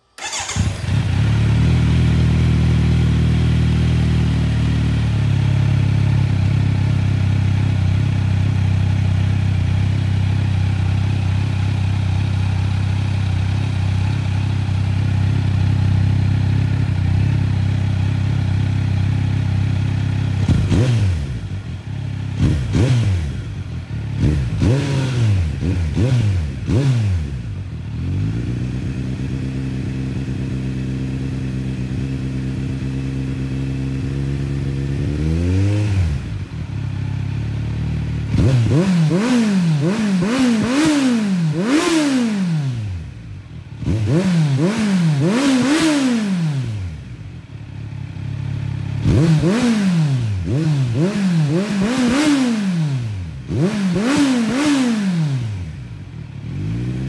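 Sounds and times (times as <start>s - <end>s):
motorcycle throttle blips: 0.2s - 4.2s, 9.4s - 30.6s
motorcycle engine idling: 0.2s - 41.9s, 42.5s - 45.8s, 46.4s - 57.0s.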